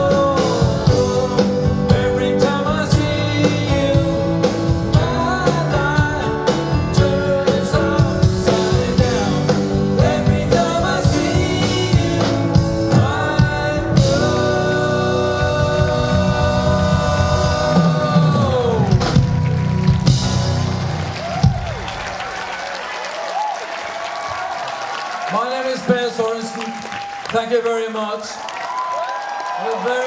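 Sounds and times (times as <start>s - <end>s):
man singing lead vocal: 0.0s - 19.3s
steady drum beat: 0.0s - 22.1s
live pop-rock band playing: 0.0s - 22.2s.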